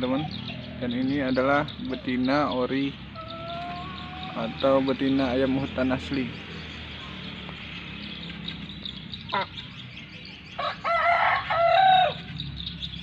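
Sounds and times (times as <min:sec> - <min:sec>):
rooster crowing: 0:10.6 - 0:12.3.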